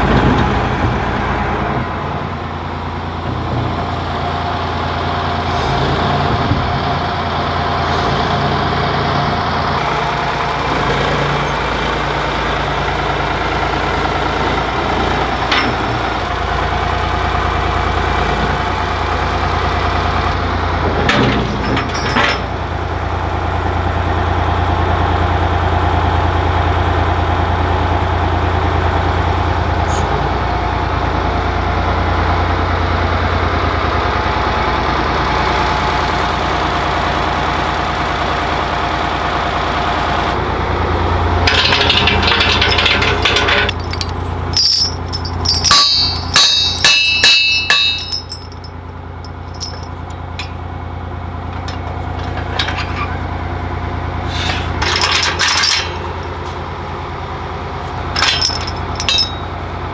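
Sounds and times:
engine running: 0.0 - 59.9
sharp metal knocks and clinks: 21.1 - 22.5, 41.5 - 50.6, 51.5 - 53.2, 54.8 - 56.2, 58.1 - 59.6.

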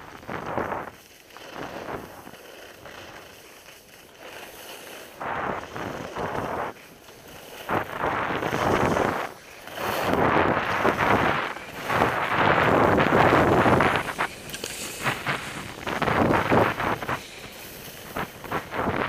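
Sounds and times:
skis scraping on snow: 0.0 - 19.0
wind buffeting microphone: 5.1 - 19.0.

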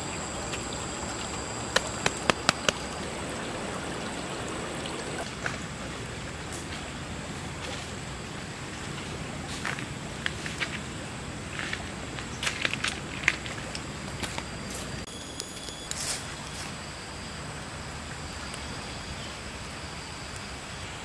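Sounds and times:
river flowing: 0.0 - 15.1
sharp clicks: 1.7 - 2.9.

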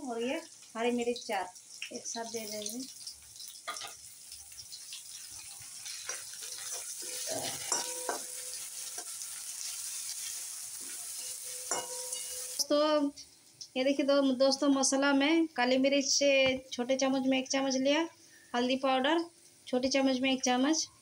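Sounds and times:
food sizzling in hot oil: 0.0 - 15.1
spatula scraping metal pan: 5.4 - 12.6.

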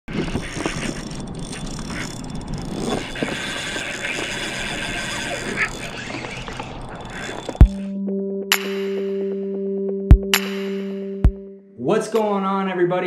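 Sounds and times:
fishing reel whirring: 0.0 - 7.9.

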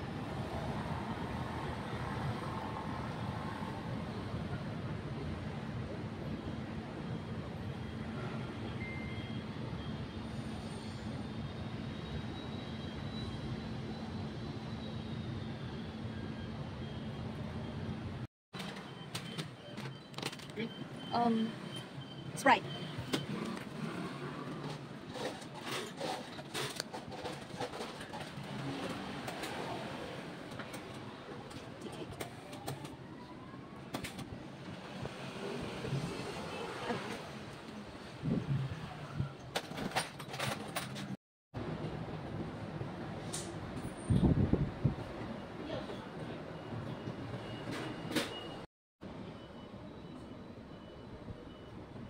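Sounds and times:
city traffic rumble: 0.0 - 52.0
rustles and clatters of handling: 24.4 - 29.6.

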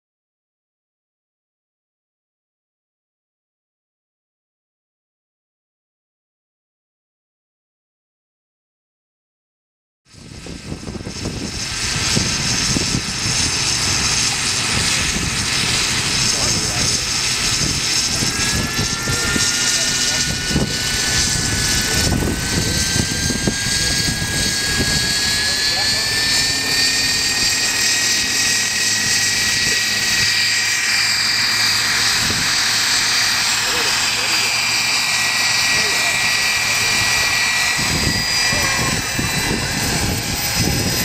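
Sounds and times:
wind buffeting microphone: 10.1 - 30.7, 31.8 - 32.8, 36.2 - 41.0
low hum: 10.1 - 41.0
model helicopter engine and rotor: 10.1 - 41.0.

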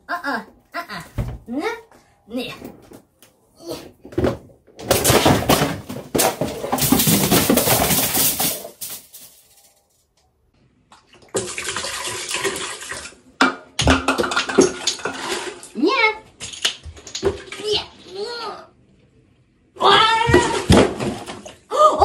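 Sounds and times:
metal rack crashing over: 4.8 - 9.6.

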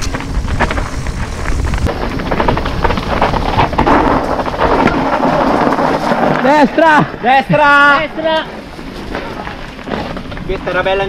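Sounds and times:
bike knocking and rattling: 0.0 - 11.0
tyres rumbling on dirt: 0.0 - 11.0
wind buffeting microphone: 0.0 - 11.0.

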